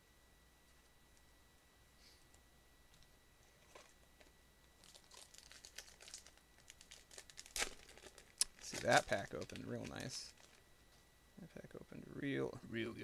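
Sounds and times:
foil wrapper tearing and crinkling: 4.8 - 10.6.

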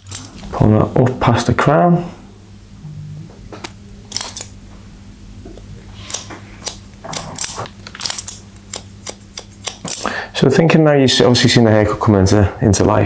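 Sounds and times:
scissors snipping hair: 6.0 - 10.1.

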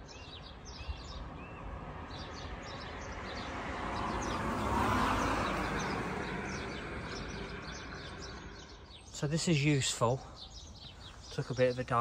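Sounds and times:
small birds chirping: 0.0 - 12.0
vehicle passing: 0.9 - 9.1.

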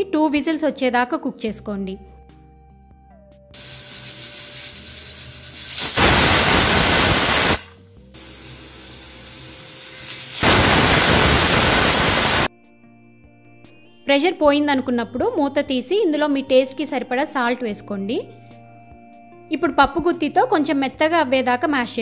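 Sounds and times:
pressure cooker whistling: 3.6 - 12.5
steam hissing from vent: 3.6 - 12.5.

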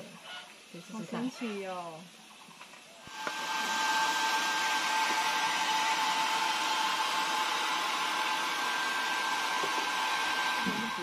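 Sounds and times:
hair dryer whining air rush: 3.0 - 11.0.

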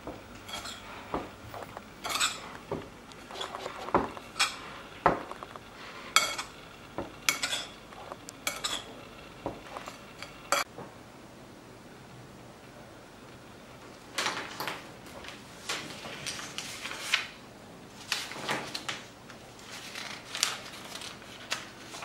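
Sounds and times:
spoon clinking and scraping bowl: 0.4 - 9.0, 9.6 - 10.7.

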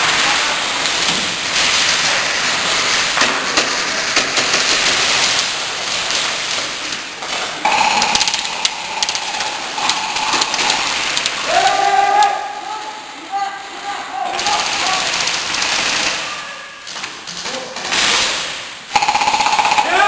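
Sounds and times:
airsoft guns firing rapidly: 0.0 - 6.7, 7.7 - 11.7, 14.3 - 16.4, 17.8 - 20.0
steady high-pitched tone: 7.7 - 11.2.

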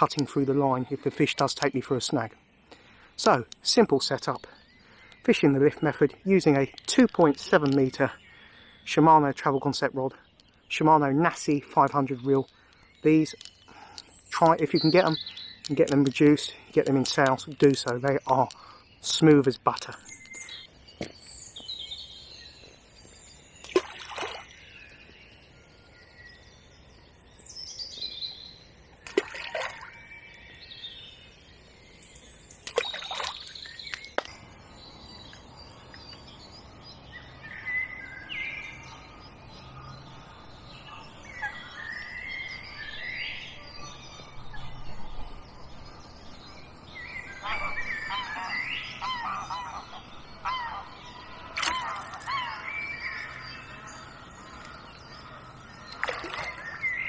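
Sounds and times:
songbirds singing: 0.0 - 57.0
geese honking: 47.3 - 55.4.

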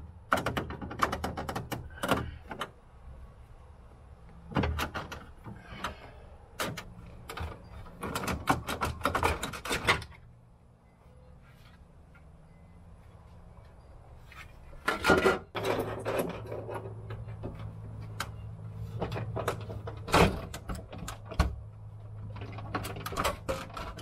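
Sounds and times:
plastic panels knocking and clattering: 0.2 - 2.7, 4.4 - 10.2, 14.8 - 24.0.

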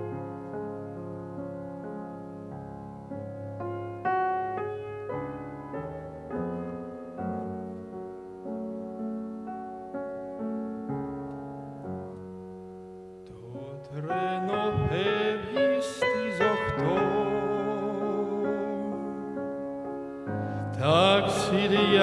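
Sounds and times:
piano playing slow chords: 0.0 - 22.0
man singing with vibrato: 13.3 - 19.6, 20.5 - 22.0.

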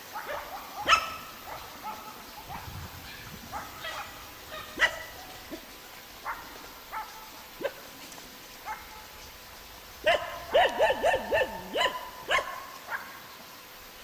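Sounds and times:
dog barking: 0.1 - 5.6, 6.2 - 7.8, 8.6 - 9.2, 10.0 - 13.2.

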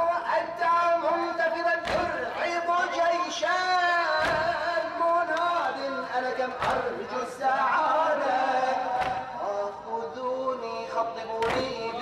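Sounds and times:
man chanting through a microphone: 0.0 - 12.0
chest-beating slaps: 1.8 - 2.2, 4.2 - 4.6, 6.6 - 6.9, 9.0 - 9.4.

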